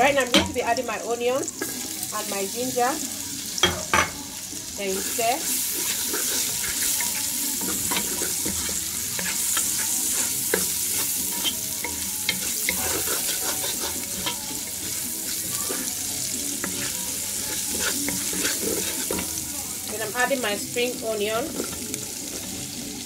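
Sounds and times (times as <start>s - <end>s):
onions sizzling in hot oil: 0.0s - 23.0s
wooden spoon scraping and stirring: 5.0s - 19.4s, 21.5s - 22.5s.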